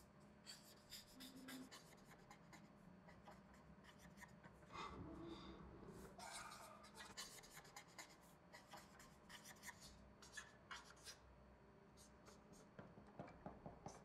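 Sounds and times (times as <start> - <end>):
marker squeaking on whiteboard: 0.4 - 4.3, 6.2 - 11.2.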